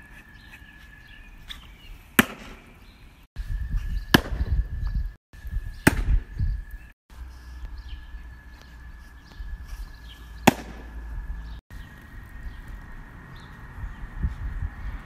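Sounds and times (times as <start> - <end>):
baseball striking catcher's mitt: 2.2 - 2.6, 10.4 - 11.0.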